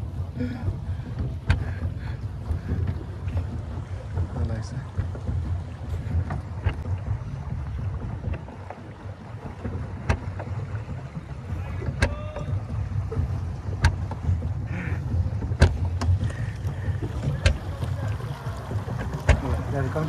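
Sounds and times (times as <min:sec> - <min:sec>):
low rumble of water and wind: 0:00.0 - 0:20.0
sharp knocks of boat hull: 0:01.0 - 0:17.9, 0:18.8 - 0:19.7.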